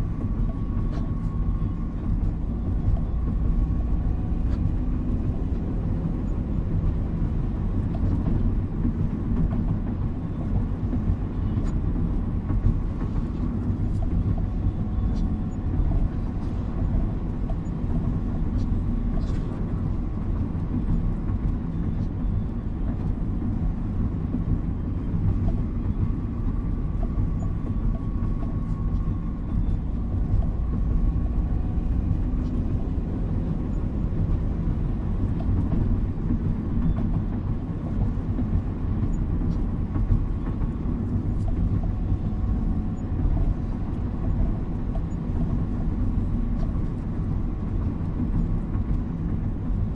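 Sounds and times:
car engine rumble: 0:00.0 - 0:49.9.

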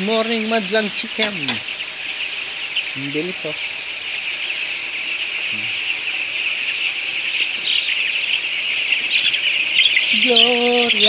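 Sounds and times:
chicks peeping: 0:00.0 - 0:11.0.

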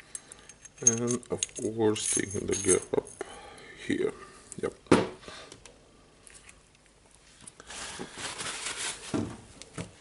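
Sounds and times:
rustling: 0:06.2 - 0:09.9.

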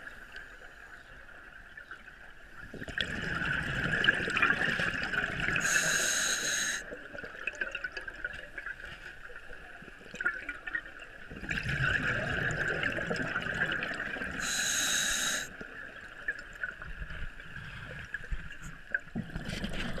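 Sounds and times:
bubbling of exhaled air: 0:02.7 - 0:07.0, 0:11.3 - 0:15.8
hissing breaths through regulator: 0:05.6 - 0:06.9, 0:14.4 - 0:15.6.

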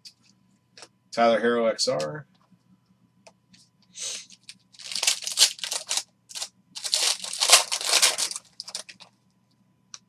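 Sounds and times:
foil wrapper tearing and crinkling: 0:04.3 - 0:09.1.

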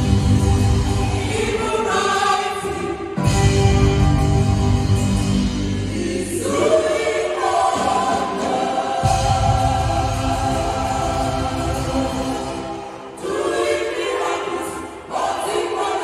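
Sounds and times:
choir singing: 0:00.0 - 0:16.0.

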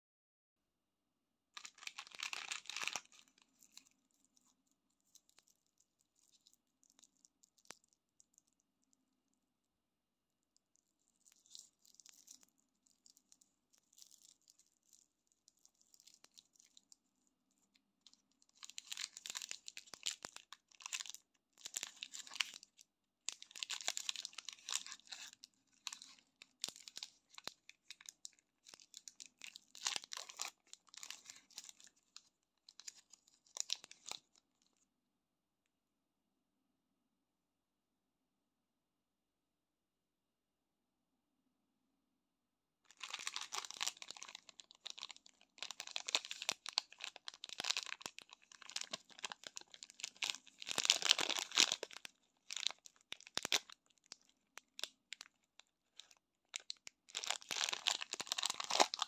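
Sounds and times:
wrapper tearing: 0:01.6 - 0:03.9, 0:18.6 - 0:32.0, 0:32.7 - 0:34.2, 0:42.9 - 0:55.3, 0:56.0 - 0:59.0
plastic wrappers crinkling: 0:01.6 - 0:08.6, 0:10.8 - 0:17.2, 0:18.0 - 0:34.4, 0:42.9 - 0:59.0.

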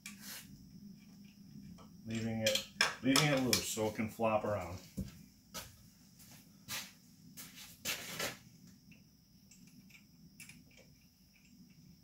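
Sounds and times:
small parts scraping and knocking: 0:07.9 - 0:12.0.

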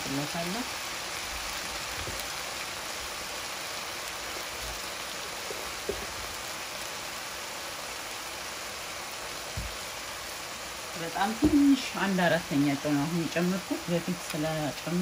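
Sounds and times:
vegetables sizzling in a pan: 0:00.0 - 0:15.0
light knock: 0:05.8 - 0:06.1.

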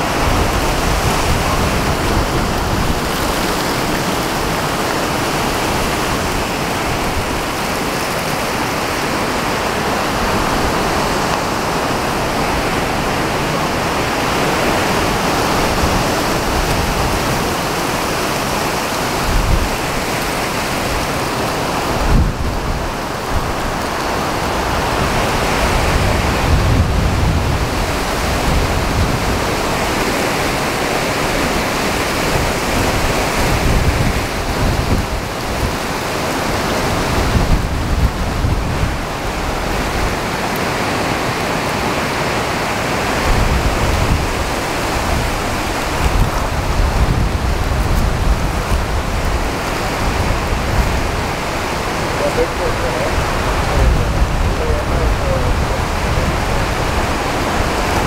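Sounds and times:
heavy rain: 0:00.0 - 0:58.0
strong wind: 0:00.0 - 0:58.0
low rumbling thunder: 0:24.6 - 0:30.0, 0:43.2 - 0:58.0.

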